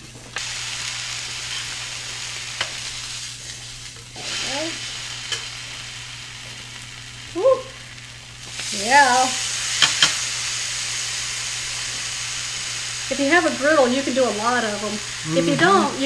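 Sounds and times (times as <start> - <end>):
tortillas sizzling on griddle: 0.0 - 16.0.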